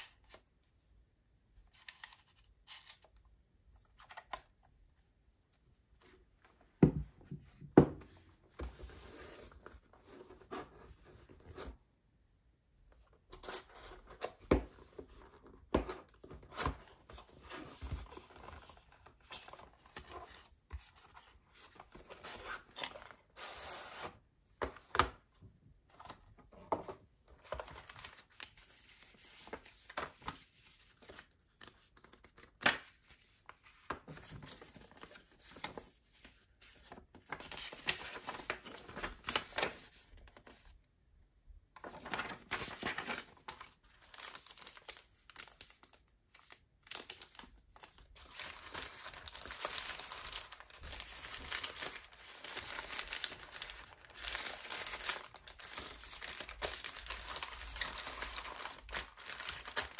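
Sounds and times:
plastic and paper crinkling: 0:41.8 - 0:59.9.

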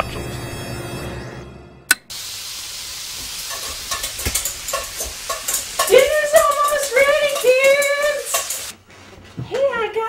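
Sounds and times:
food sizzling in frying pan: 0:02.1 - 0:08.8
utensil knocking against pan: 0:03.2 - 0:08.7.

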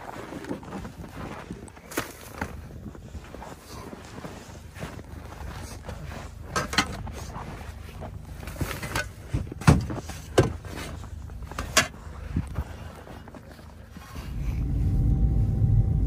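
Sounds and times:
low steady rumble: 0:04.6 - 0:16.0.

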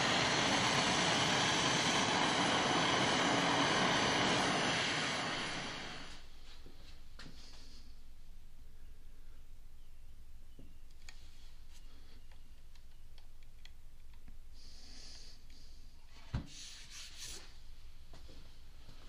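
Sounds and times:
branding iron hissing on wood: 0:00.0 - 0:06.2.

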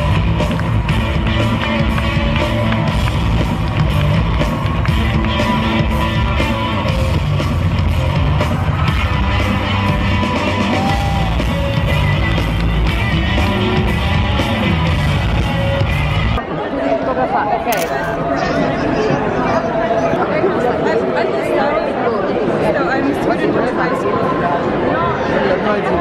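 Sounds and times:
loud music with steady beat: 0:00.0 - 0:16.4.

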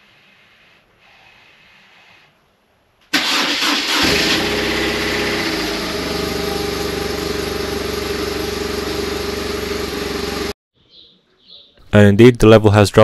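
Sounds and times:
motorcycle engine starting and idling: 0:03.1 - 0:10.6.

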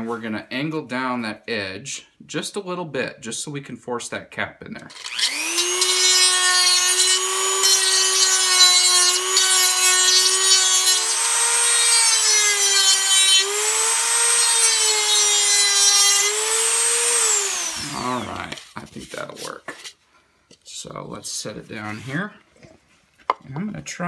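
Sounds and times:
rotary tool sanding whine: 0:04.9 - 0:19.2.

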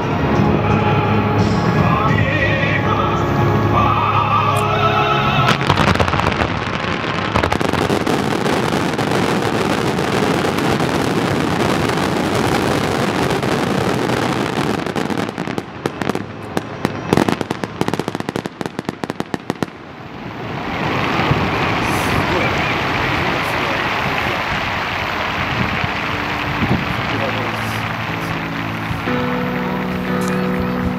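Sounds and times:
fireworks bursting and crackling: 0:04.6 - 0:30.9
sharp firework pops and bangs: 0:05.5 - 0:19.9, 0:20.6 - 0:30.4.

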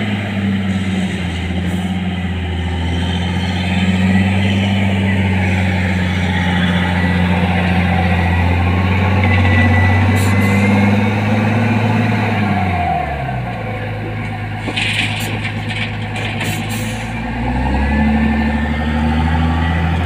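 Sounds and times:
wheel loader diesel engine: 0:00.0 - 0:20.0.

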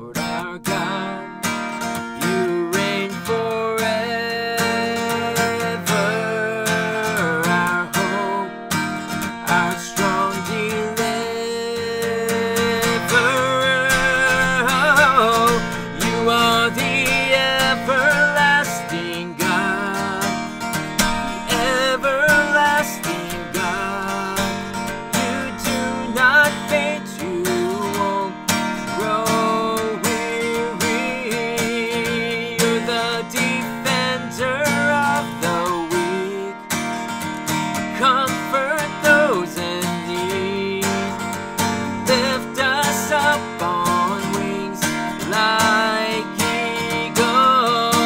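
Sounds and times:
person singing wordless notes: 0:00.0 - 0:08.6, 0:09.3 - 0:36.6
acoustic guitar strumming: 0:00.0 - 0:48.0.

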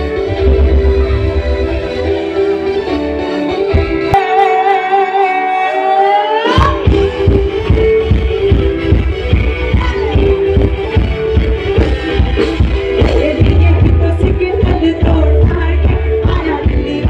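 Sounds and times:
guitar: 0:00.0 - 0:17.0
live band music through pa: 0:00.0 - 0:17.0
long held wavering note: 0:04.2 - 0:06.6.

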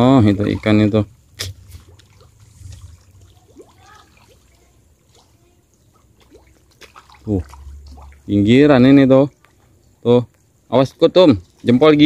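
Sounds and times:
fish plopping at water surface: 0:06.0 - 0:08.3.

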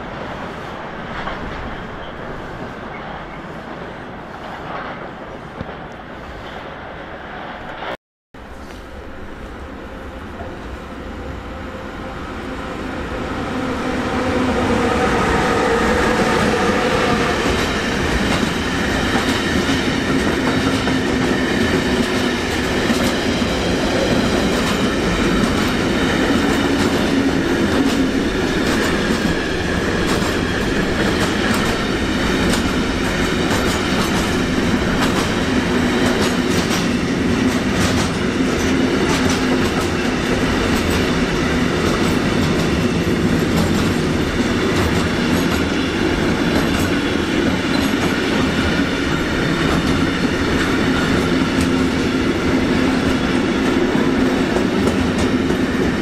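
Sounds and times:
train wheels clickety-clack on rails: 0:00.0 - 0:06.7, 0:12.5 - 0:56.0
locomotive whine: 0:08.4 - 0:56.0.

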